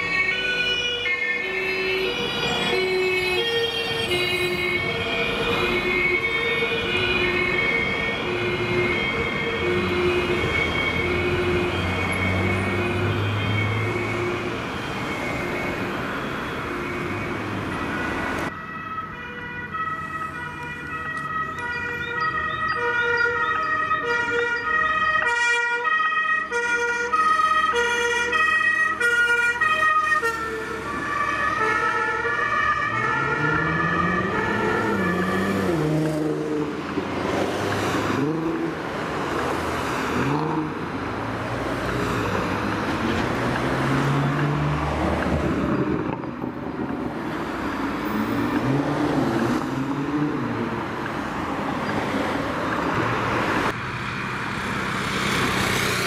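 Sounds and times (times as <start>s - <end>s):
two-tone emergency siren: 0.0s - 36.8s
vehicle engines revving: 30.3s - 56.0s.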